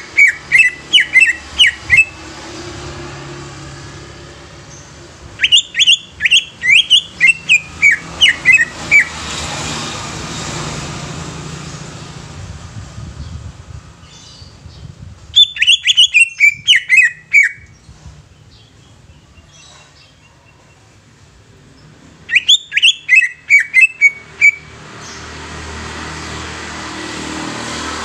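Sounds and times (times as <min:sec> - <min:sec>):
bird chattering song: 0:00.0 - 0:02.3, 0:04.7 - 0:09.2, 0:14.0 - 0:21.0, 0:21.8 - 0:25.3
broad rushing noise: 0:06.5 - 0:15.4.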